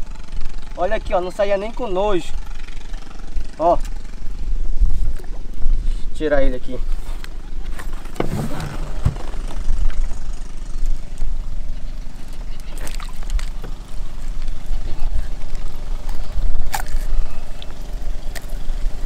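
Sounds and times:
boat motor idling: 0.0s - 19.0s
wind rumble on microphone: 2.0s - 19.0s.

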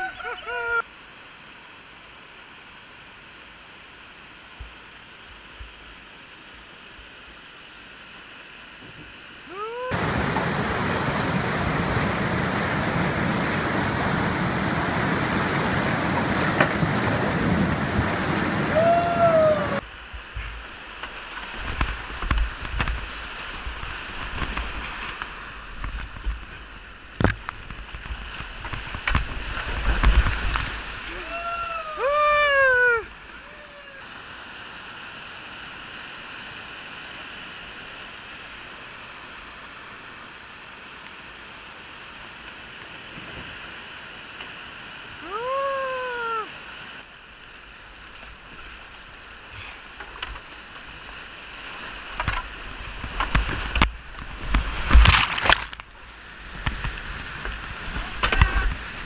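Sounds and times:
whitewater rushing: 6.2s - 59.0s
kayak splashing with low thumps: 10.0s - 18.7s, 19.8s - 31.1s, 49.9s - 59.0s.

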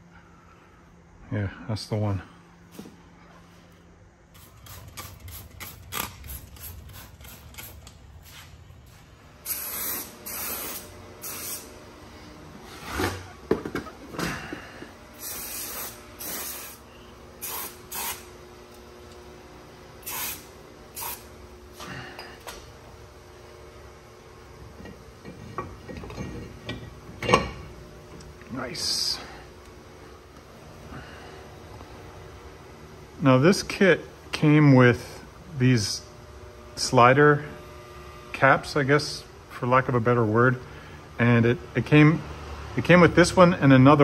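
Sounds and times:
aerosol spray hissing: 9.4s - 11.7s, 15.2s - 16.8s, 17.4s - 18.3s, 20.0s - 21.3s.

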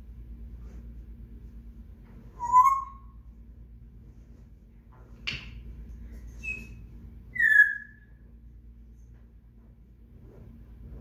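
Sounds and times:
parrot high chirp: 2.4s - 3.2s, 6.4s - 8.1s
parrot whistling: 2.4s - 3.2s, 6.4s - 8.1s.

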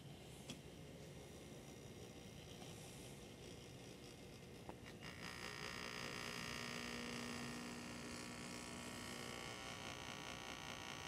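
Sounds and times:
espresso machine pump humming: 4.0s - 11.0s.

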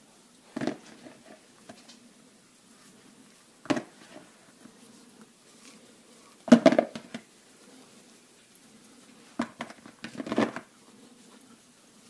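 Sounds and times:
plastic cups clattering: 0.5s - 1.3s, 3.7s - 4.3s, 6.5s - 7.3s, 9.4s - 10.7s.

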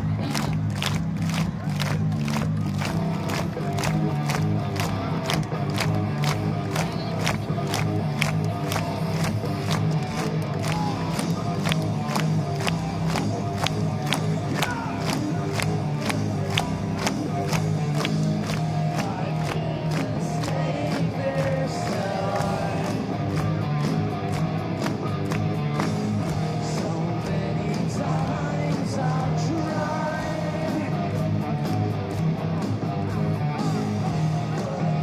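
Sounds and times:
live hard rock band playing: 2.9s - 35.0s
man singing lead vocal: 14.0s - 17.5s, 18.8s - 23.4s, 26.4s - 31.4s, 33.6s - 35.0s.

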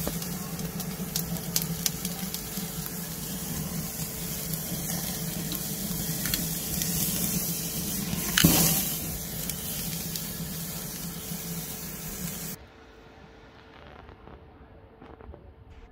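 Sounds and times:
fat sizzling over fire: 0.0s - 12.6s.

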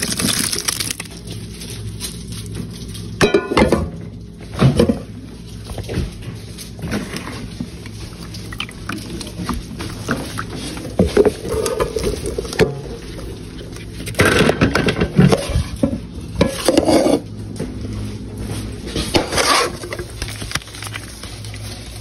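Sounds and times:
steady low hum: 0.0s - 22.0s
plastic colander and bowl scraping: 4.6s - 17.4s, 18.6s - 22.0s.

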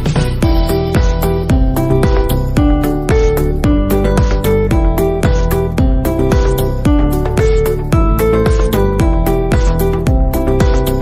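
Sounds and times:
upbeat background music: 0.0s - 11.0s.

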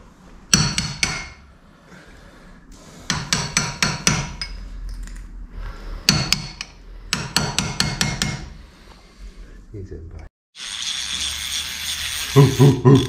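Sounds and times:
hammer tapping on metal: 0.5s - 1.4s, 3.1s - 4.6s, 6.1s - 8.5s.

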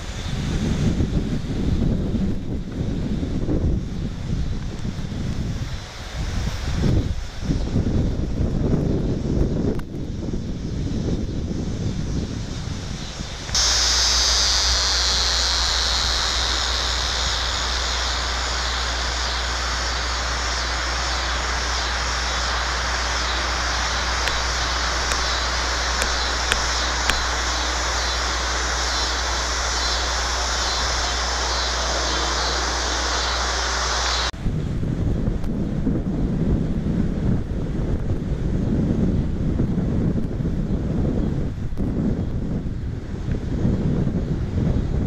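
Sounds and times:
chorus of crickets: 0.0s - 34.3s
low hum: 0.0s - 35.4s
wind buffeting microphone: 0.0s - 45.0s.

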